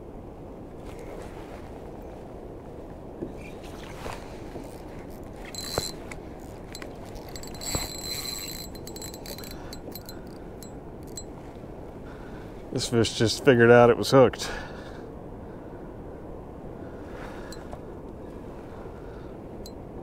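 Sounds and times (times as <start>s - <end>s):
fishing line whir: 3.4s - 11.3s
reel clicks: 4.6s - 11.3s
quick reel ticks: 4.7s - 11.3s.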